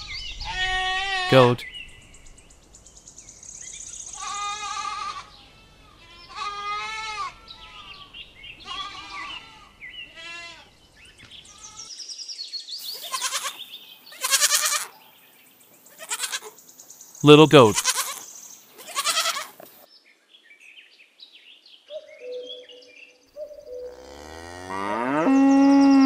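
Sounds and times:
goats bleating: 4.2 - 7.8, 8.6 - 10.6, 12.9 - 14.9, 15.9 - 16.5, 17.5 - 18.2, 18.8 - 19.6.

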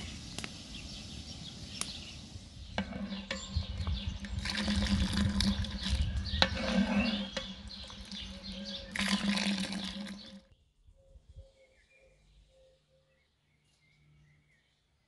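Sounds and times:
dense noise with sharp crackles: 0.0 - 2.8
birds chirping: 0.0 - 15.0.

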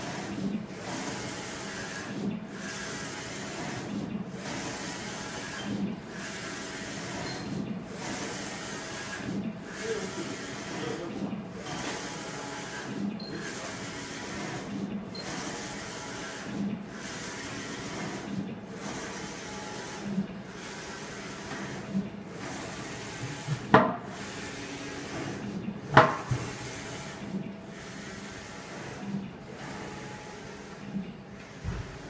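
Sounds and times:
sharp knocks: 25.9 - 26.4.

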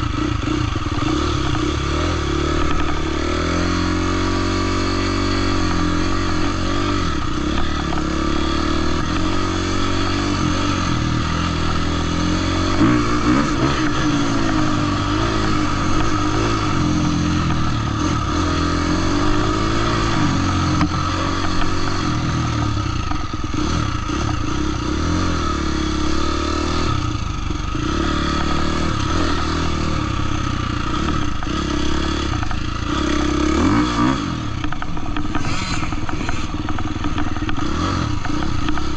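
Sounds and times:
dirt bike engine revving: 0.0 - 38.9.

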